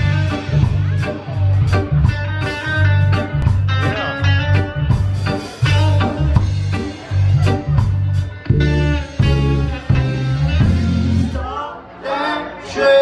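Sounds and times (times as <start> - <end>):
bass line: 0.0 - 11.6
live band playing: 0.0 - 13.0
drum beat: 4.9 - 11.3.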